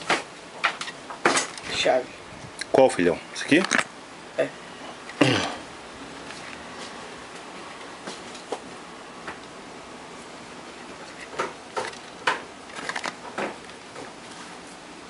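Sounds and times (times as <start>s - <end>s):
sharp clicks and knocks: 11.1s - 14.1s.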